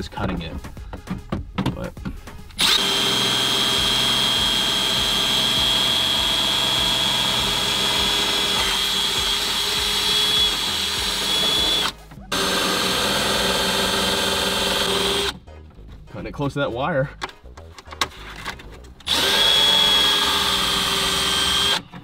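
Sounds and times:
rotary tool high whine: 2.6 - 15.4, 19.1 - 21.9.

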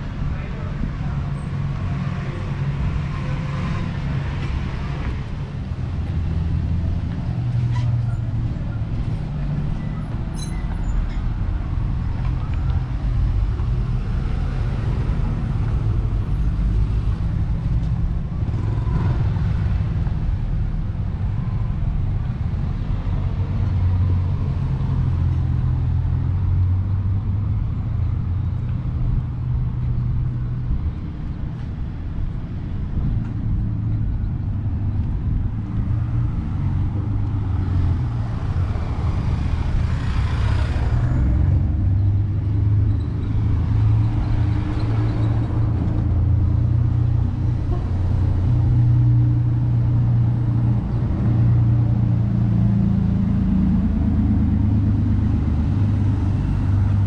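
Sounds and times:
cars driving past: 22.0 - 57.0.

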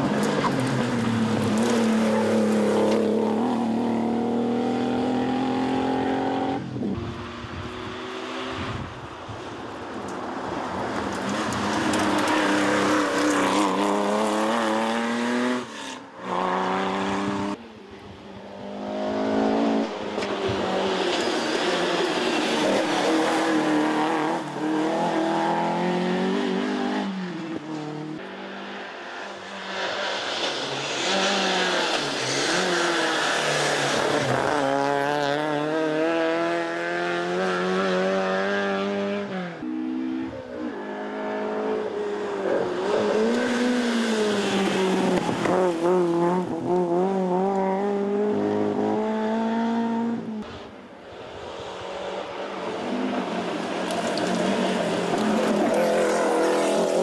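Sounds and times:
rally car engines revving: 0.0 - 9.0, 10.0 - 17.6, 18.3 - 57.0.

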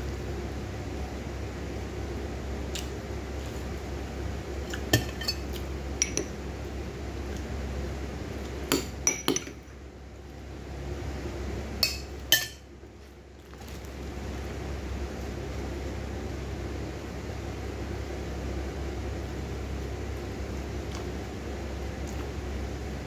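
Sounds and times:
low background hum: 0.0 - 23.0
metal spoon clinking on plate: 11.8 - 12.6.

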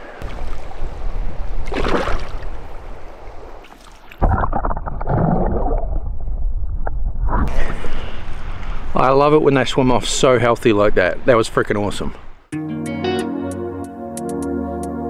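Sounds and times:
shallow river water rushing: 0.0 - 4.2
muffled underwater water sound: 0.0 - 9.2
fish splash: 1.6 - 2.6.

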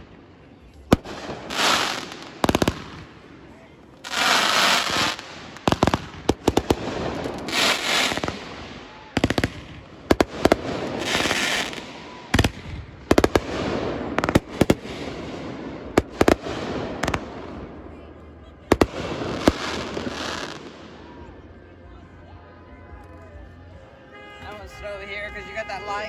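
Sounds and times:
firework hiss: 1.0 - 3.1, 4.0 - 17.2.

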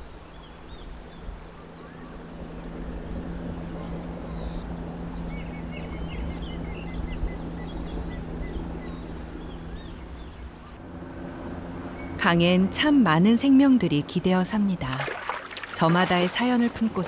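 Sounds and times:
boat motor humming: 0.0 - 17.0.

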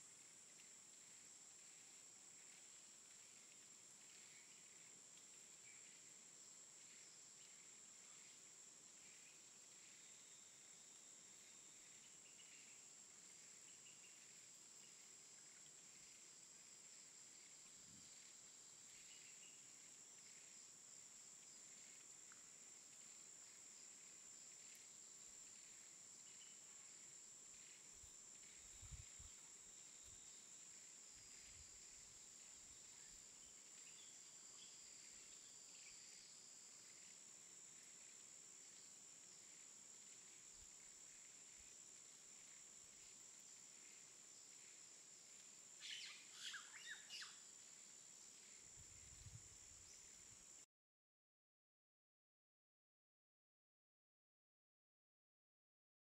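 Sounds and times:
high-pitched insect drone: 45.8 - 50.3.

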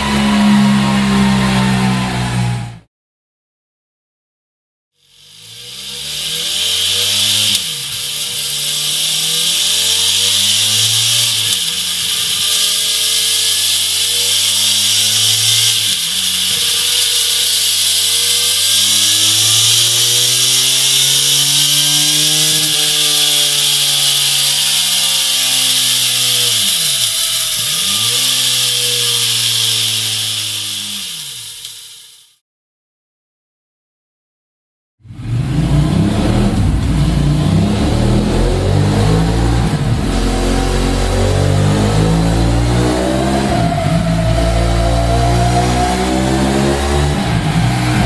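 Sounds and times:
motorcycle engine revving: 0.0 - 2.9, 5.0 - 31.8, 35.0 - 48.0
steady hiss: 5.0 - 32.4.

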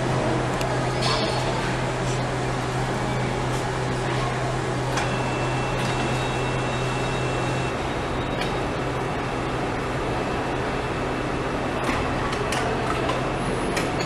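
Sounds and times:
factory machine hum and hiss: 0.0 - 14.0.

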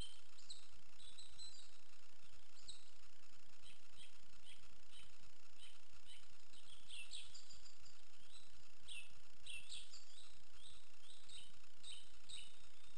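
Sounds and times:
songbirds singing: 0.0 - 12.9
steady hiss: 0.0 - 12.9.

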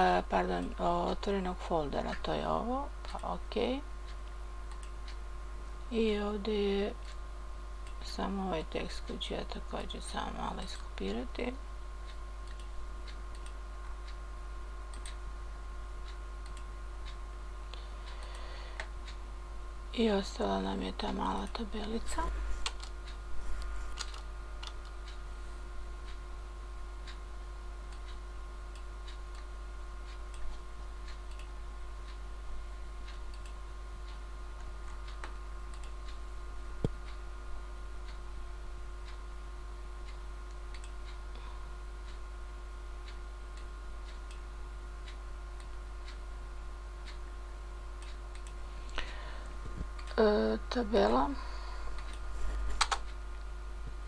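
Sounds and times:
electrical hum: 0.0 - 54.0
computer mouse clicks: 4.0 - 5.2, 12.1 - 14.2, 14.9 - 15.2, 16.0 - 19.2, 21.1 - 25.2, 30.1 - 32.2, 33.1 - 36.2, 40.1 - 41.2, 48.0 - 50.2, 52.0 - 53.2.

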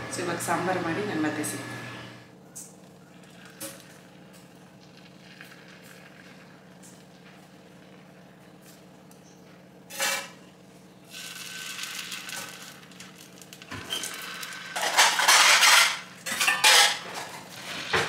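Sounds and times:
batter sizzling in pan: 3.4 - 9.2, 11.0 - 18.0.

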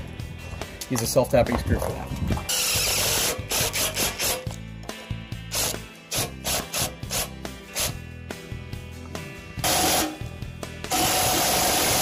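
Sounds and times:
background music with quick beat: 0.0 - 12.0.

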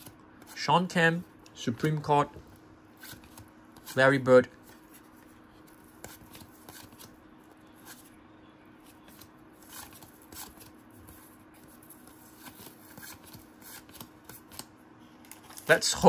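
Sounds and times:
cards sliding and flicking: 3.0 - 4.0, 4.6 - 7.2, 9.1 - 14.7.

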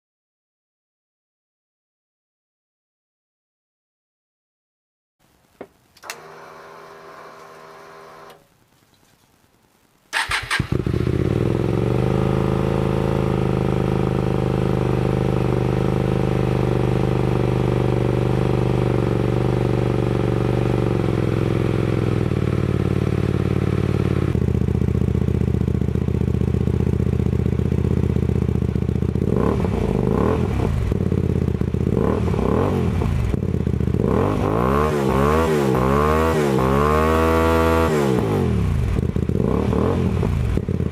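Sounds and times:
motorcycle engine starting and idling: 6.0 - 8.4, 10.1 - 40.9
motorcycle engine revving: 10.2 - 40.9.

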